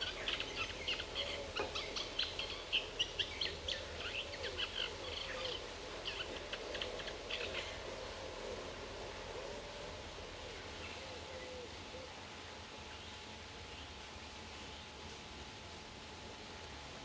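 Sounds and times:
small birds chirping: 0:00.0 - 0:08.0
outdoor background hiss: 0:00.0 - 0:17.0.

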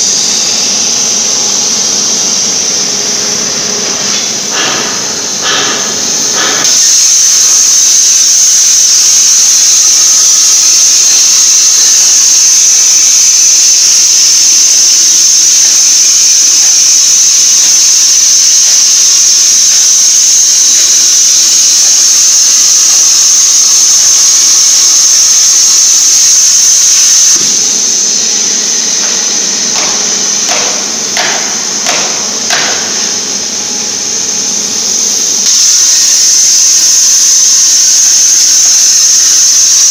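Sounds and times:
plasma arc hissing: 0:00.0 - 0:39.9.

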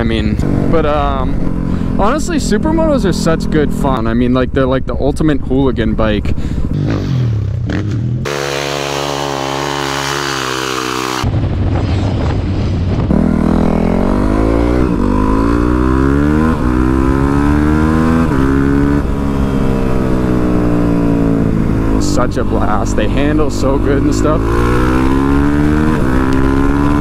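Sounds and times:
motorcycle engine revving: 0:00.0 - 0:04.6, 0:05.8 - 0:11.3, 0:13.0 - 0:27.0
wind rushing: 0:09.8 - 0:22.0.

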